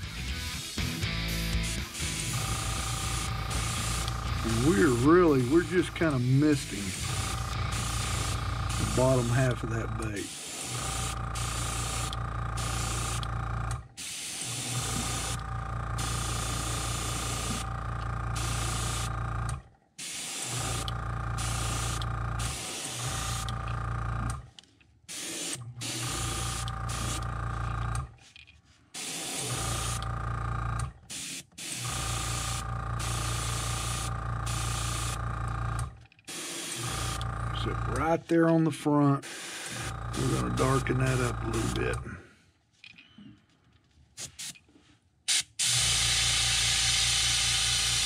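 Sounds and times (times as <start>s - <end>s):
small motor humming: 0.8s - 19.7s, 20.3s - 24.5s, 25.5s - 28.2s, 29.0s - 31.1s, 31.7s - 38.2s, 39.5s - 42.0s, 45.7s - 48.0s
airbrush hissing: 1.3s - 13.3s, 14.0s - 15.4s, 16.0s - 17.7s, 18.4s - 19.1s, 20.0s - 23.5s, 25.1s - 27.2s, 28.9s - 30.0s, 31.1s - 35.2s, 36.3s - 37.2s, 39.2s - 41.8s, 45.6s - 48.0s.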